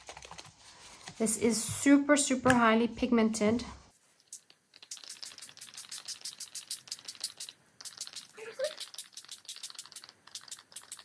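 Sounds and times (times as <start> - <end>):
spray bottle hissing spurts: 4.2 - 11.0.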